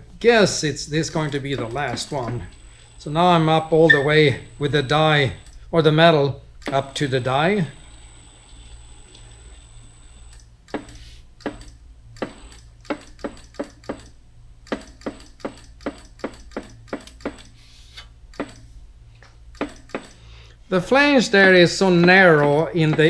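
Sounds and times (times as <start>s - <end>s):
bead roller motor humming: 1.0s - 5.6s, 6.8s - 10.4s
sharp metal clicks: 10.4s - 17.6s.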